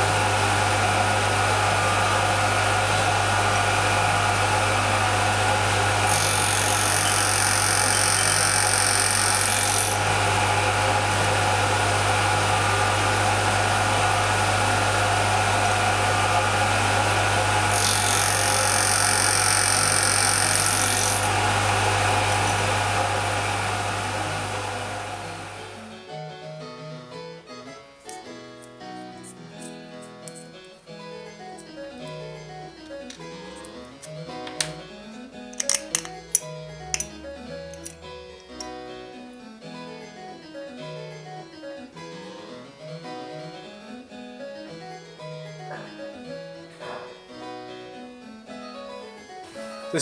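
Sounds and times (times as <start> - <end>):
machine spindle and blower hum: 0.0 - 25.9
shrill high cutting whine: 0.0 - 25.9
piano music: 9.4 - 18.7, 20.5 - 50.0.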